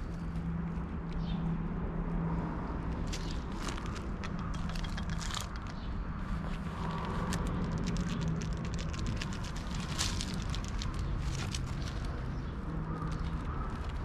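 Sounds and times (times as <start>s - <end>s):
rustling in dry leaves: 2.9s - 14.0s.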